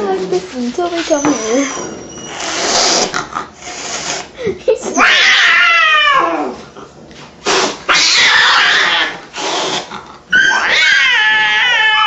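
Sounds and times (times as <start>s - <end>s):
cat hissing: 1.4s - 4.4s, 7.4s - 12.0s
cat yowling: 4.9s - 6.6s, 7.9s - 9.2s, 10.3s - 12.0s.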